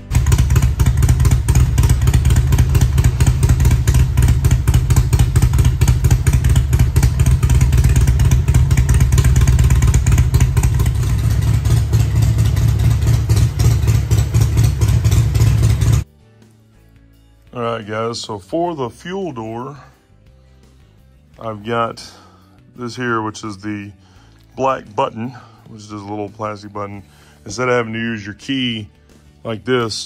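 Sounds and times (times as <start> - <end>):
motorcycle idling loudly: 0.0 - 16.0.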